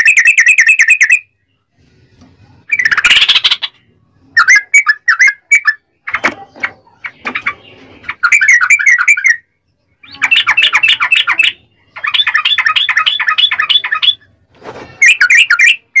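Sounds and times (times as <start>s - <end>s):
bulbul singing chattering song: 2.7s - 14.3s.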